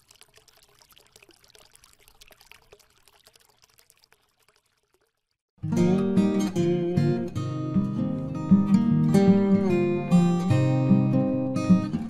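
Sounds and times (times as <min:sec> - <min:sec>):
faint trickling and crackling: 0:00.0 - 0:05.5.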